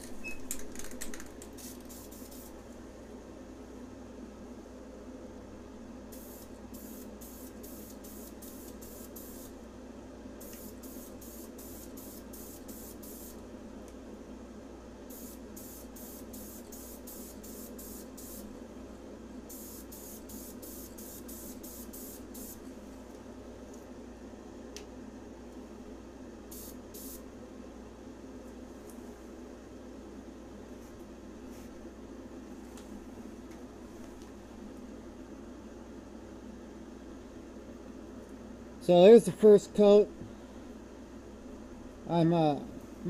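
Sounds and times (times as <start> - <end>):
spray can hissing in spurts: 1.5 - 2.6, 10.4 - 13.4.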